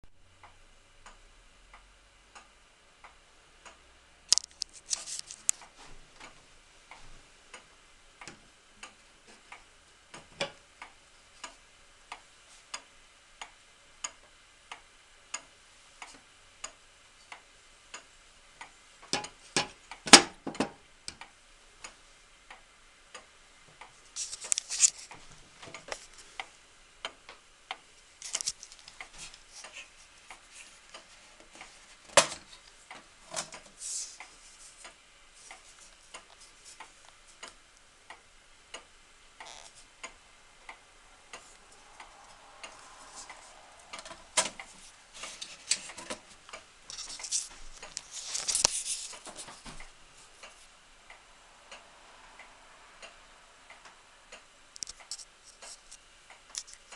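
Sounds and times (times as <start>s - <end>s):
pendulum clock ticking: 5.6s - 20.0s.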